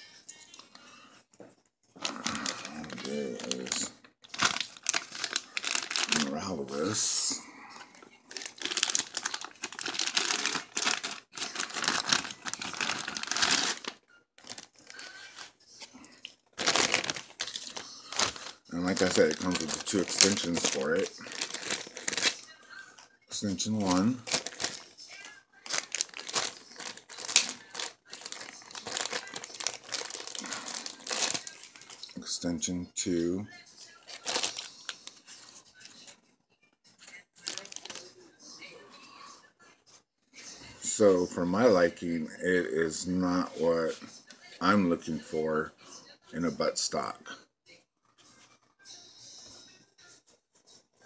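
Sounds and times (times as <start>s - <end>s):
plastic packaging crinkling: 2.0s - 7.2s, 8.3s - 15.6s, 16.5s - 32.2s, 34.1s - 35.3s, 37.4s - 38.1s.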